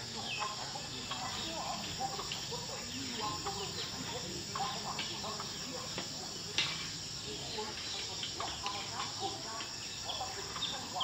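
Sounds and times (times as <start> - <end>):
insects and birds chirping: 0.0 - 11.0.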